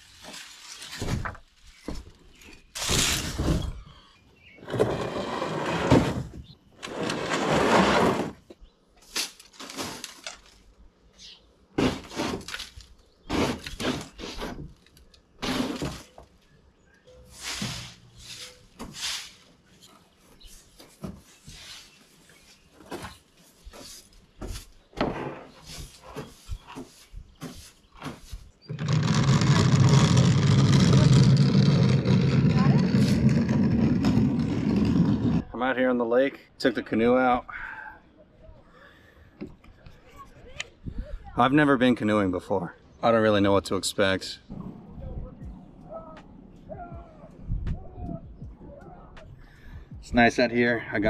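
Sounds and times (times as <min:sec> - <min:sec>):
broom sweeping leaves: 0:00.0 - 0:01.0, 0:17.2 - 0:22.8, 0:23.4 - 0:24.8, 0:25.4 - 0:28.5
canoe scraping across asphalt: 0:04.5 - 0:08.5, 0:13.2 - 0:16.2, 0:23.7 - 0:35.6.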